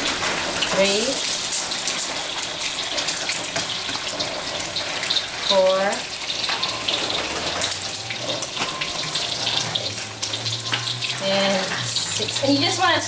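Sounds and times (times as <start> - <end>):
eggs sizzling in hot oil: 0.0 - 13.0.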